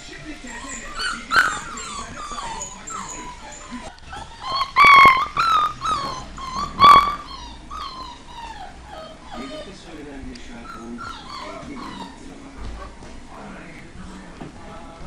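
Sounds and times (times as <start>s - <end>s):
dogs whimpering and yelping: 0.4s - 9.9s, 10.5s - 12.4s.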